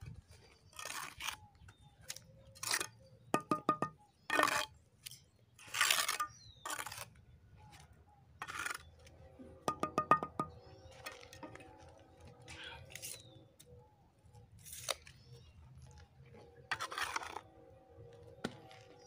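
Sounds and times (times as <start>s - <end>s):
trowel scraping mortar: 0.7s - 1.4s, 2.6s - 4.7s, 5.6s - 7.2s, 8.4s - 9.0s, 12.8s - 13.3s, 16.7s - 17.4s
ringing metallic taps: 3.4s - 4.0s, 9.7s - 11.6s.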